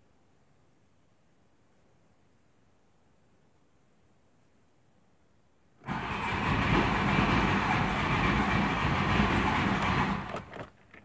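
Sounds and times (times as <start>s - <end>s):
diesel engine cranking on starter: 5.8s - 10.7s.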